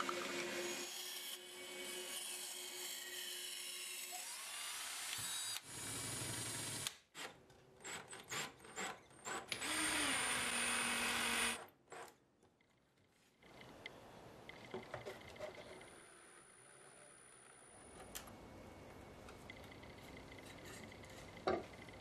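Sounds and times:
power drill boring into bamboo: 9.5 - 11.6.

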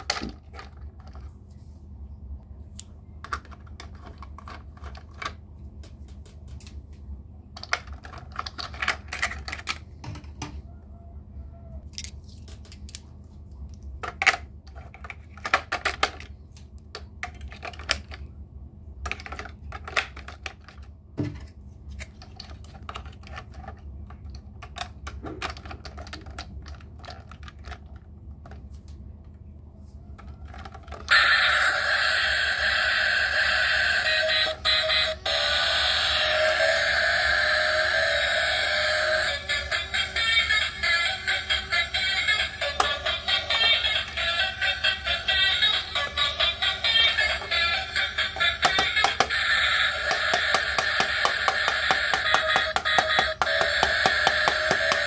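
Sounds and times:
steady low hum: 0.0 - 55.0
plastic toy trains clicking: 22.1 - 28.1, 39.2 - 55.0.

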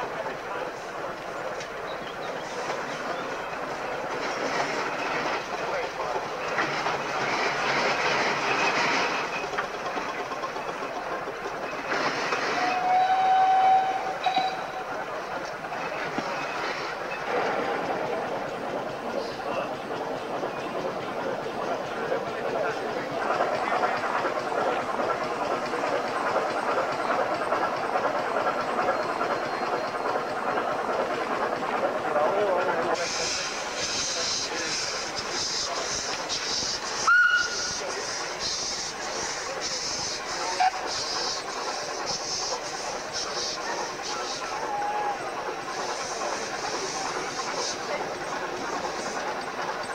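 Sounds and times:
steam engines hissing: 0.0 - 49.9
steam whistle: 12.5 - 14.7, 37.0 - 37.7.

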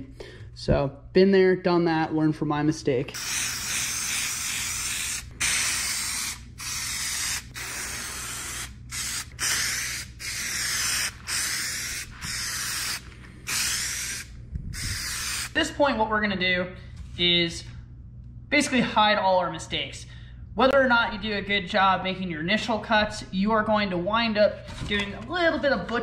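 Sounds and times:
aerosol can spraying: 3.1 - 15.6.

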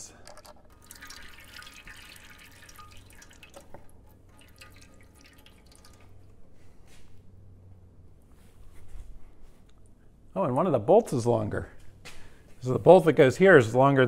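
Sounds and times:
fluid dripping into pan: 0.3 - 6.5.

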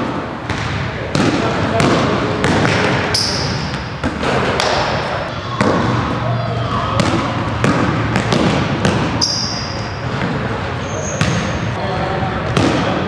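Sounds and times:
sneaker squeaks: 3.1 - 7.6, 8.2 - 11.8
basketball bouncing on wooden floor: 7.0 - 9.2.

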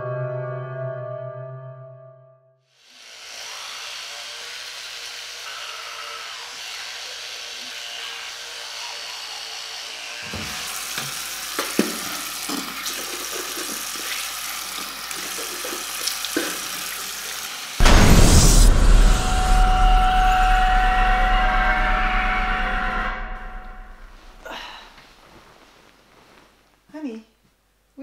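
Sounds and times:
tap water running into basin: 10.3 - 17.8.

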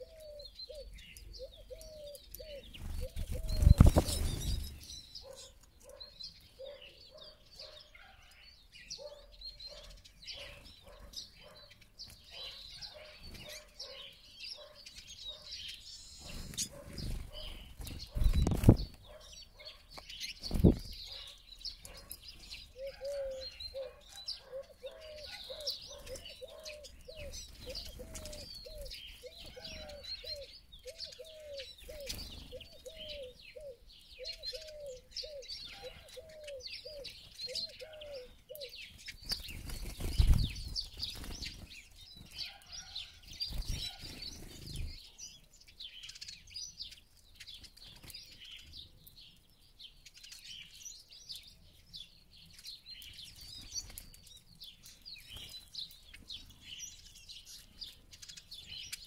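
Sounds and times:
small birds twittering: 0.0 - 59.0
flurry of wingbeats: 2.8 - 4.7, 39.2 - 41.7.

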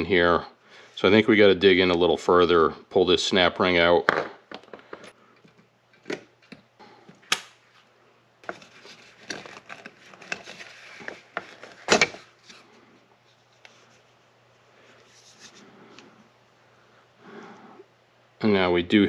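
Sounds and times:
plastic parts rustling and knocking: 4.0 - 7.2, 8.4 - 12.6.

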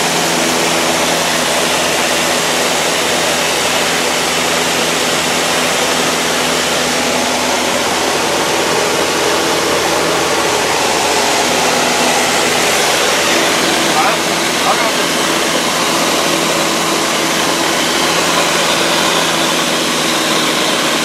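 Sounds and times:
rush of air: 0.0 - 20.9
light airplane engine drone: 0.0 - 21.0.

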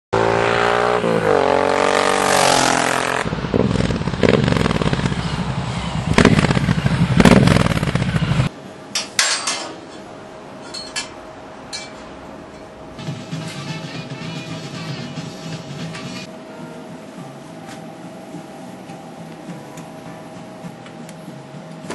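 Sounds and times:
motorcycle engine revving: 0.2 - 8.5.

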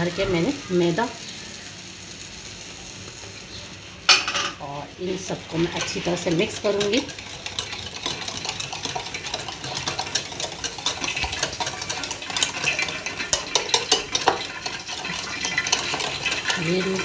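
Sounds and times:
whisk beating sauce in bowl: 5.5 - 17.0.

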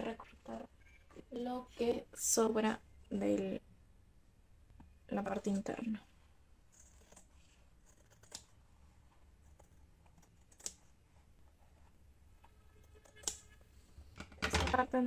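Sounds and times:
scissors snipping: 6.8 - 8.6.

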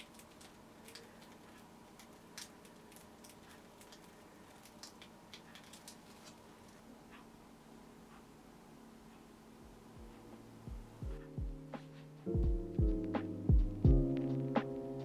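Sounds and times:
plastic piping bag crinkling: 0.0 - 6.8
low room hum: 0.0 - 15.0.

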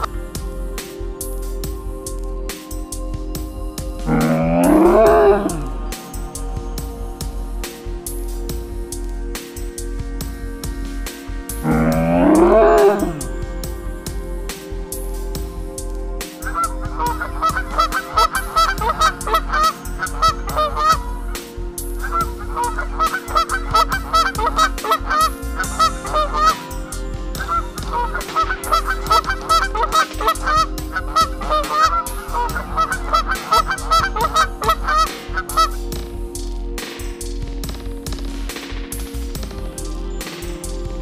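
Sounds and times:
waterfowl honking: 16.4 - 21.1, 22.0 - 35.8.

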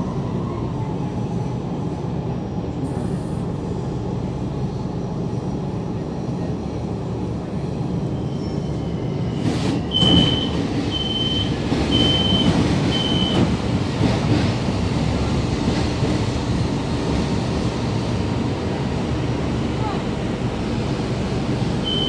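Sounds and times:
low train rumble: 0.0 - 22.0
high door warning beeps: 9.9 - 13.4.

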